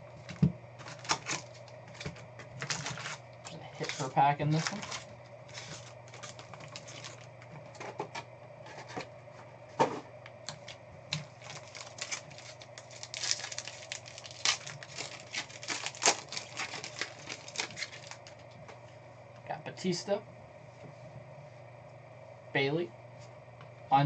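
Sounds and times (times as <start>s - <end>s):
faint steady hum: 0.0s - 24.0s
foil pack crinkling and tearing: 0.2s - 7.8s, 10.4s - 18.5s.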